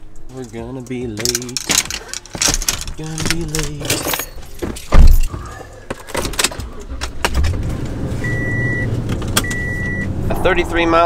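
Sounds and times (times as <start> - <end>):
small rattles: 0.3 - 5.3
truck door slamming: 4.6 - 7.7.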